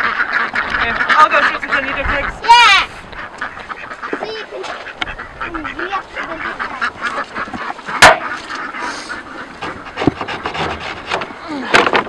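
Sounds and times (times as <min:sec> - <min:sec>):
ducks quacking: 0:00.0 - 0:12.0
sharp loud knock: 0:08.0 - 0:08.4.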